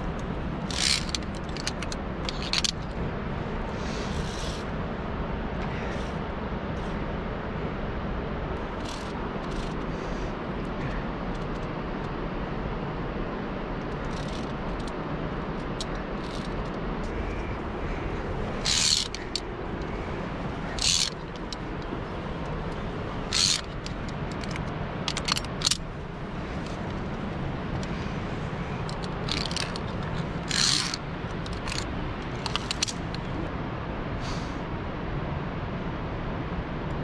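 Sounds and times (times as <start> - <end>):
climbing gear scraping: 0.0 - 3.0, 3.8 - 4.7, 8.7 - 9.9, 13.9 - 33.5
steady rushing noise: 0.0 - 37.0.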